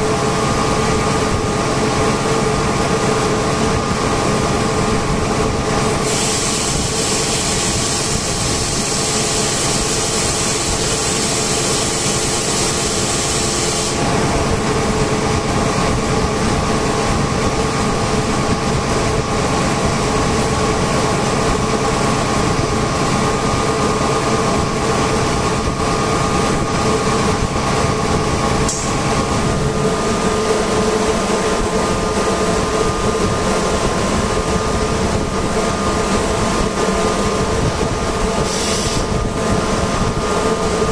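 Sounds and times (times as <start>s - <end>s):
air compressors droning: 0.0s - 40.9s
high air hiss: 5.8s - 14.0s, 38.4s - 39.2s.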